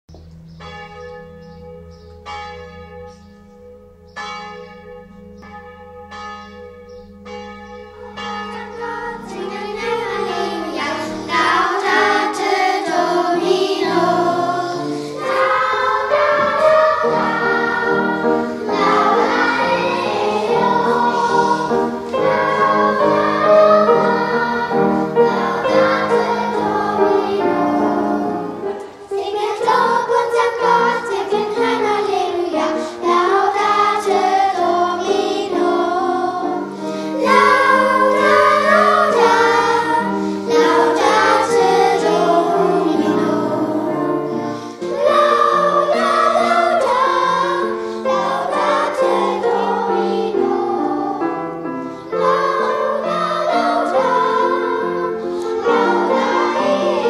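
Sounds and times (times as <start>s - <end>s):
sustained low chord: 0.1s - 12.0s
bell-like notes: 0.1s - 51.1s
children's choir singing: 4.0s - 57.0s.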